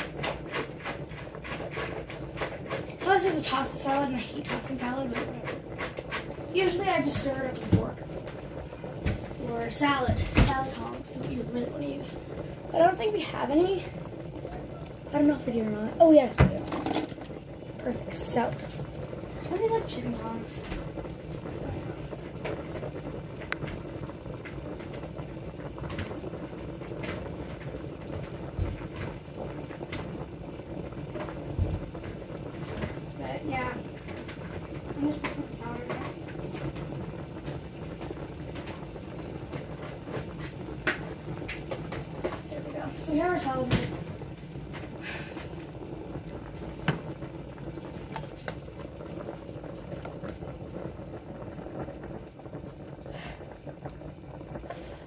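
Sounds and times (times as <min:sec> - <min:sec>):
water boiling in a pot: 0:00.0 - 0:55.0.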